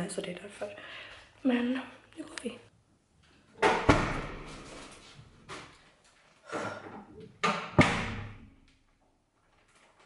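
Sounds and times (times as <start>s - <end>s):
door shutting with a thud: 3.6s - 4.6s, 7.4s - 8.4s.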